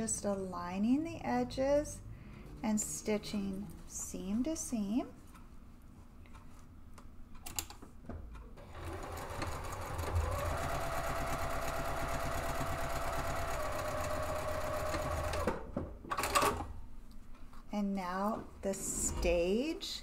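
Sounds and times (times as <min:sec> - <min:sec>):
sewing machine stitching: 0:08.6 - 0:16.7.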